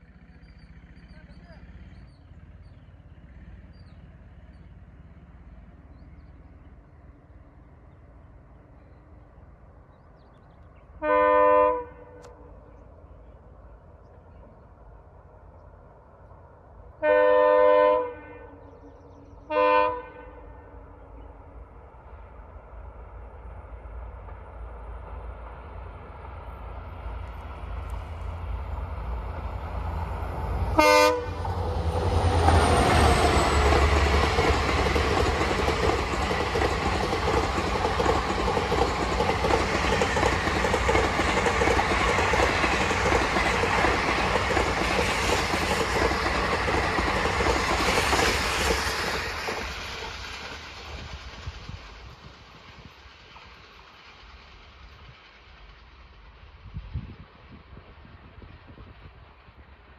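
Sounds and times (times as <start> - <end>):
train wheels rumbling on rails: 0.0 - 11.1, 11.7 - 59.9
train horn blast: 11.0 - 12.4, 17.0 - 18.7, 19.5 - 20.8, 30.7 - 31.5.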